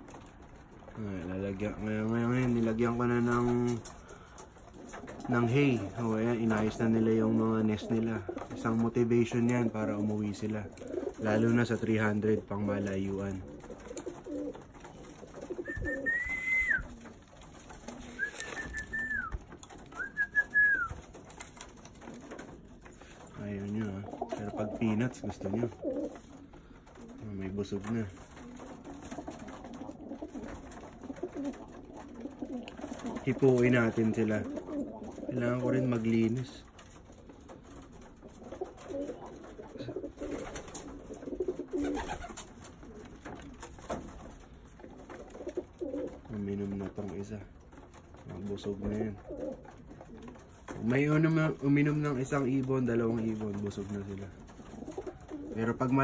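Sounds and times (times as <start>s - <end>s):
pigeons cooing: 0.0s - 47.0s, 47.6s - 56.0s
person whistling notes: 15.7s - 16.8s, 20.0s - 20.9s.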